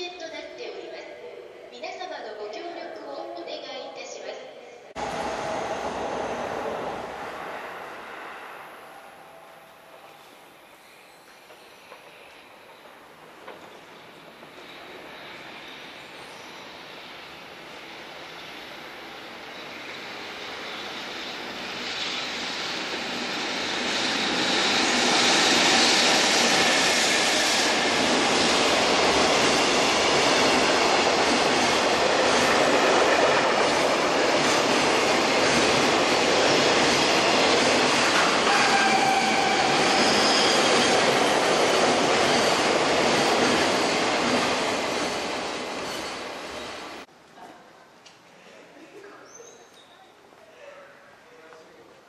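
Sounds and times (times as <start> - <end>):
freight train wheels rumbling on rails: 5.0 - 47.1
high wheel squeals: 13.6 - 17.7, 38.5 - 41.3, 45.8 - 46.7.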